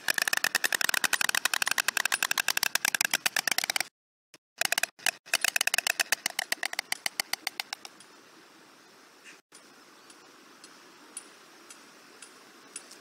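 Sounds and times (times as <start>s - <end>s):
storks clattering bills: 4.6s - 7.9s.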